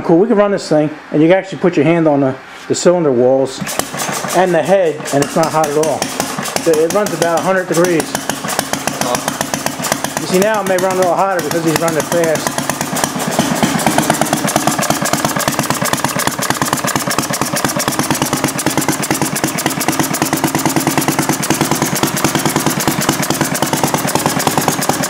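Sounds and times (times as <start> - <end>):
single-cylinder engine running fast: 3.6 - 25.0.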